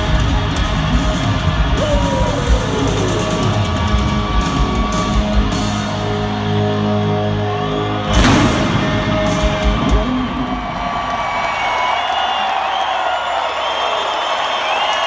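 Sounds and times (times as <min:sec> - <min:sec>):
live hard rock band: 0:00.0 - 0:11.6.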